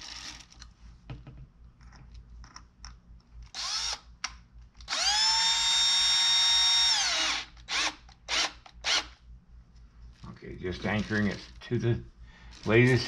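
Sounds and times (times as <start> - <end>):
cordless drill driving screw: 3.5 - 4.0, 4.8 - 9.2.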